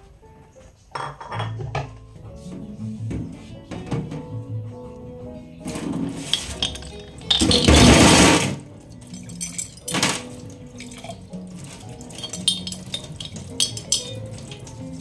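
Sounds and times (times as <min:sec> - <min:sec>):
glass clinking against sink: 0:06.2 - 0:08.4, 0:09.0 - 0:11.2, 0:12.0 - 0:14.8
tap water splashing into sink: 0:09.9 - 0:14.8.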